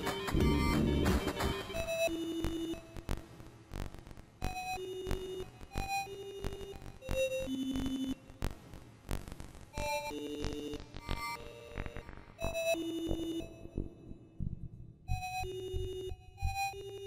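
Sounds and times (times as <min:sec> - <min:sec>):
electronic music with synth notes: 0:00.0 - 0:03.0.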